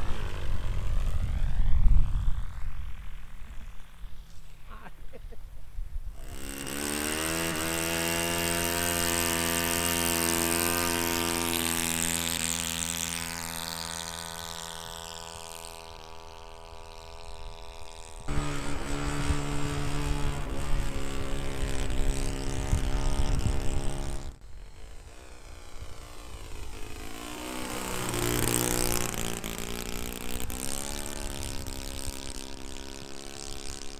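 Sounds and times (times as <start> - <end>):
wind rumbling on microphone: 0.0 - 4.8, 17.1 - 24.4, 28.0 - 33.9
model plane engine running: 0.0 - 5.0, 6.1 - 33.9.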